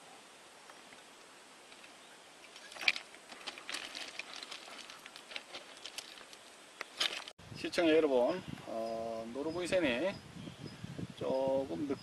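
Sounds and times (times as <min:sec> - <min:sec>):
faint outdoor background: 0:00.0 - 0:12.0
stones crunching underfoot: 0:01.7 - 0:07.4.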